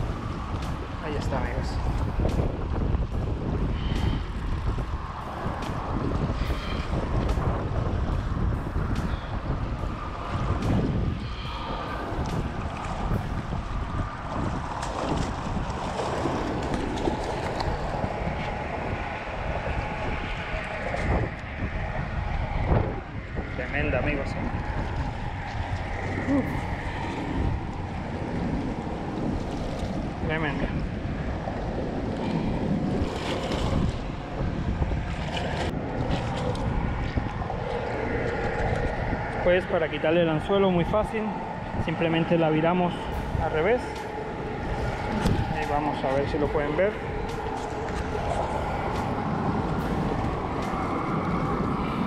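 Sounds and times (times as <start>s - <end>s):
water splashing: 0.0s - 21.2s
waves lapping on rocks: 0.0s - 21.3s, 23.9s - 52.0s
wind buffeting microphone: 0.0s - 52.0s.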